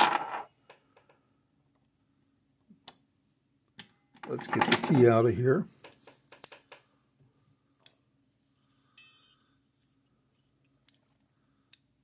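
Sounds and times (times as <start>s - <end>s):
metal tool ringing clink: 9.0s - 9.4s.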